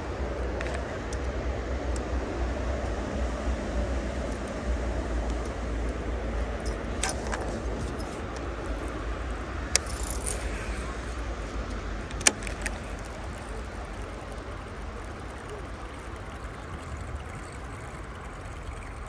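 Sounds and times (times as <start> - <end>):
sharp clicks: 6.4 - 16.9.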